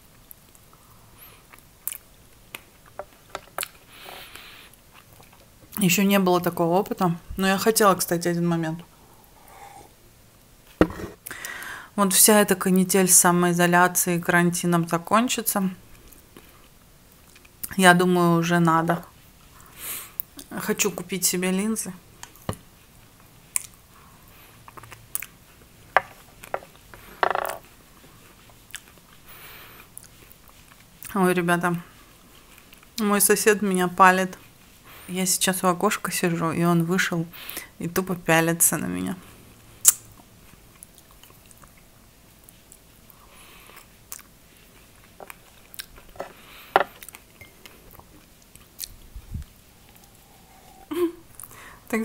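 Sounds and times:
breathing: 3.9 - 4.8, 9.0 - 9.9, 11.2 - 12.0, 29.2 - 29.9, 37.3 - 37.8, 43.1 - 43.9, 46.3 - 46.9, 49.8 - 51.9.

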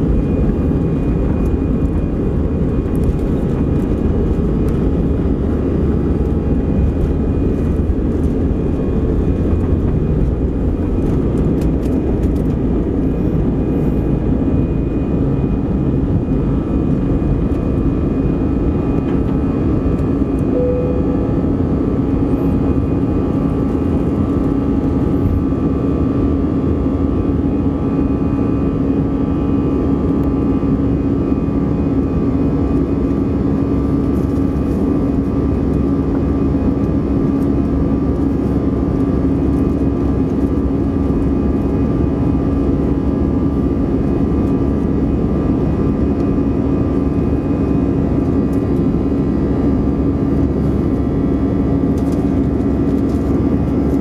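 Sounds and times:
steady cabin hum: 0.0 - 28.6
jet engines roaring: 0.0 - 54.0.

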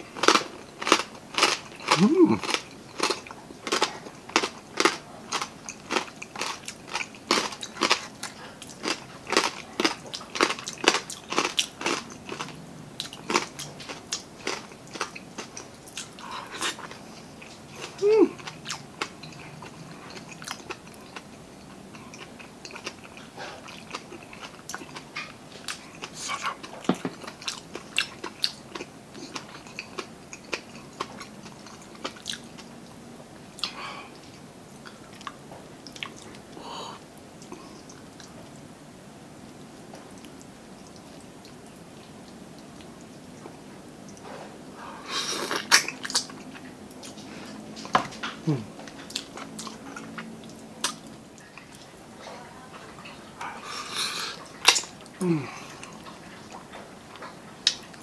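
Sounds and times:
crunchy chewing: 0.0 - 33.0, 42.6 - 52.0
soft chewing: 0.0 - 38.7, 39.6 - 58.0.

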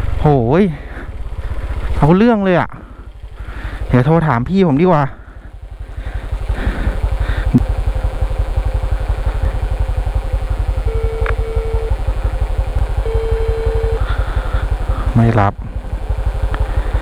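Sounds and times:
motorcycle engine idling: 0.0 - 17.0
phone ringback tone: 10.8 - 12.1, 13.0 - 14.1.

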